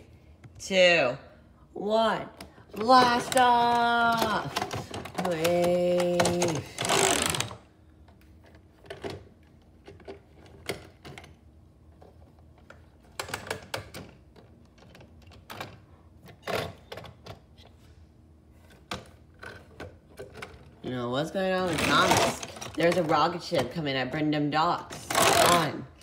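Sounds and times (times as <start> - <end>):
plastic toys clicking and knocking: 2.4 - 7.6, 8.4 - 11.4, 12.0 - 17.4, 18.7 - 20.8.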